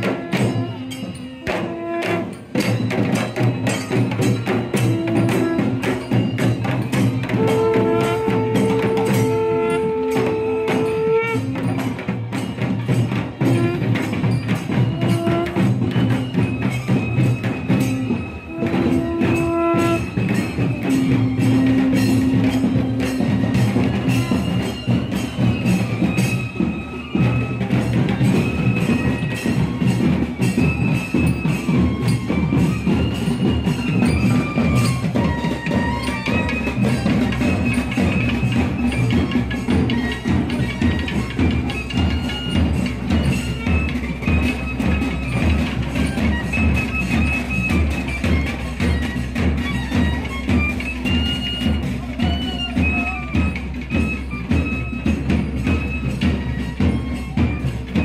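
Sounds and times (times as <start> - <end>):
drums beating fast rhythm: 0.0 - 58.0
curved horn blasts: 7.3 - 11.6, 17.8 - 23.2.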